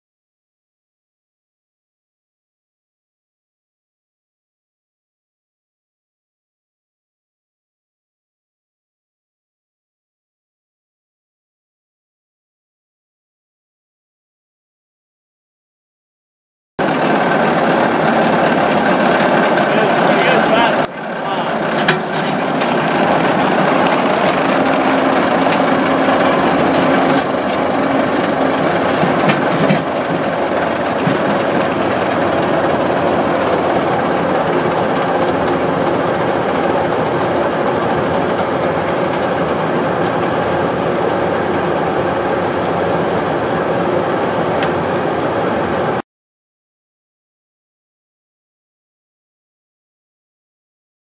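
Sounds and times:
mining machine running: 0:16.8 - 0:46.0.

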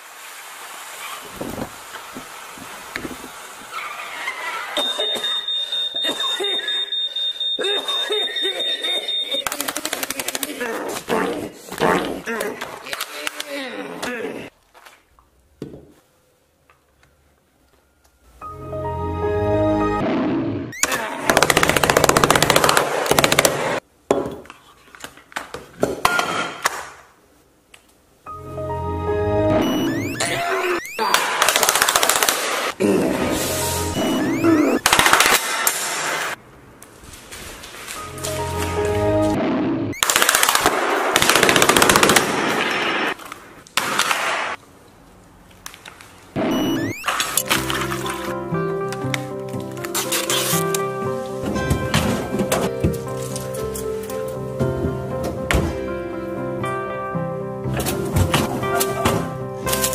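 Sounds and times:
rapid sharp bangs: 0:21.3 - 0:23.8, 0:31.0 - 0:32.8
computer startup chime: 0:29.5 - 0:31.2, 0:33.8 - 0:34.8, 0:46.5 - 0:47.2.

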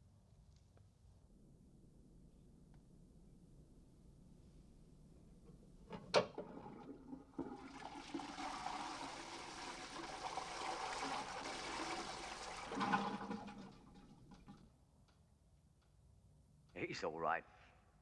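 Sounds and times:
toilet flush water rushing: 0:06.2 - 0:14.6.

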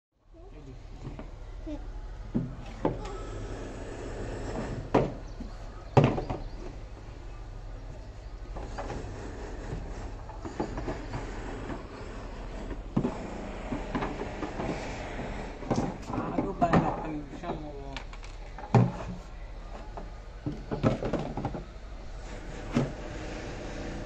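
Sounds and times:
plastic parts knocking and scraping: 0:08.5 - 0:21.7.

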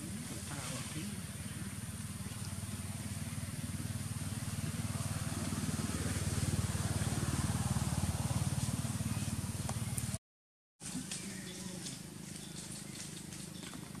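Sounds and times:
small engine running: 0:00.0 - 0:10.2.

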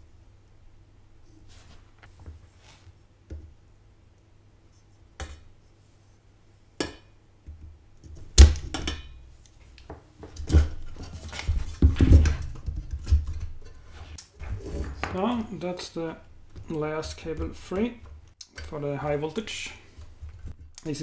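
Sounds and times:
knocks and handling noise: 0:01.4 - 0:03.6, 0:06.8 - 0:21.0.

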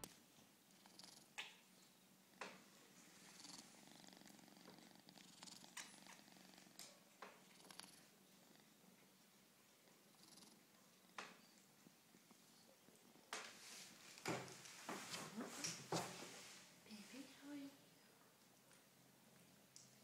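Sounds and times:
kitten purring: 0:00.0 - 0:01.6, 0:02.3 - 0:09.3, 0:09.9 - 0:14.5.

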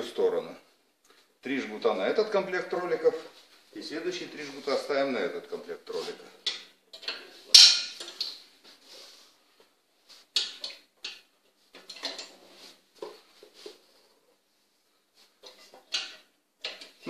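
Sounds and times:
sharp metal clank: 0:07.5 - 0:08.0.

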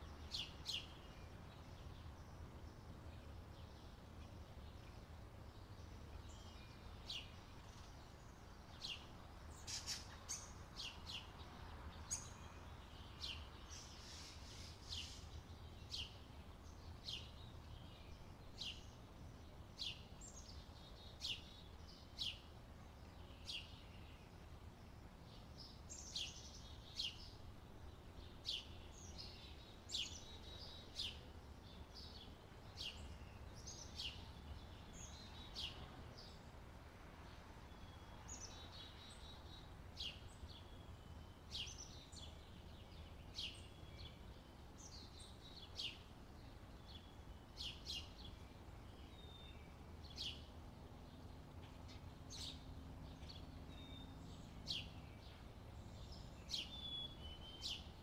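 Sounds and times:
birds chirping: 0:37.7 - 0:58.0.

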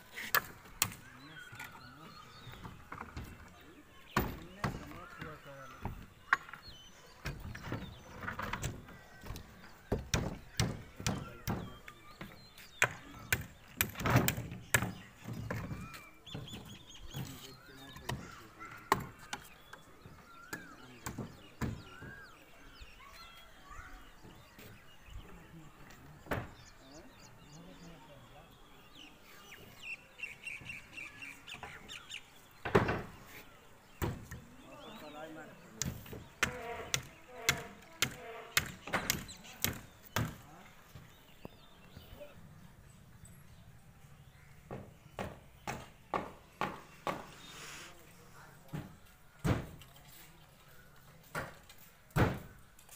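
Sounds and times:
wooden planks knocking on concrete: 0:44.6 - 0:47.4.

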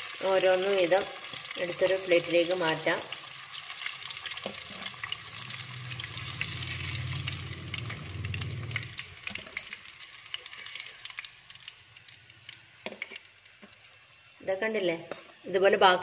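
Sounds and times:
oil sizzling and crackling: 0:00.0 - 0:15.8
low hum: 0:04.5 - 0:09.8.

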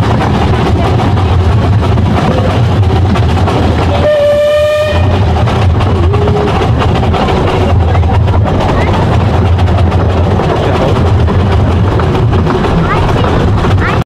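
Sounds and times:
train wheels rumbling and clattering: 0:00.0 - 0:14.0
steam locomotive whistle blast: 0:04.0 - 0:05.1.

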